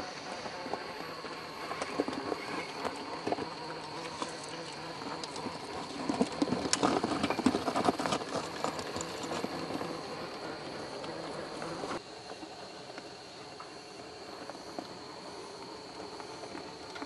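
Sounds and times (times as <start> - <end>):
toy truck tyres crunching on rocks: 0.4 - 12.0.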